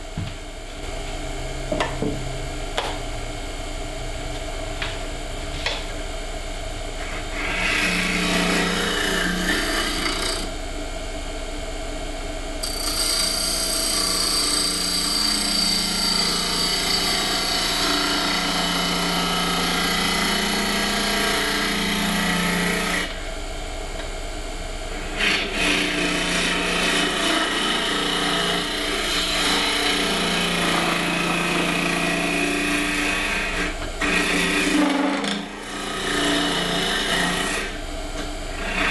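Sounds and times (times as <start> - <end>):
lathe humming: 7.0 - 10.6, 12.6 - 23.2, 24.9 - 37.8, 38.5 - 38.9
turning tool scraping wood: 38.6 - 38.9.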